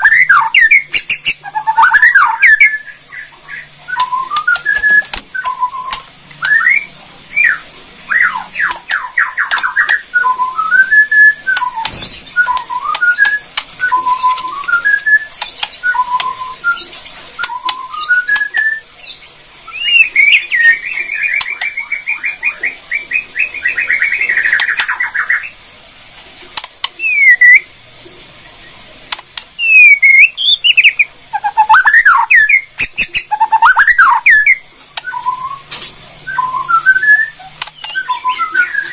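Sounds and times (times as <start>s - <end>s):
bird rattling trills: 0.0s - 18.8s
bird singing whistled phrases: 0.0s - 25.5s, 27.0s - 27.7s, 29.6s - 38.9s.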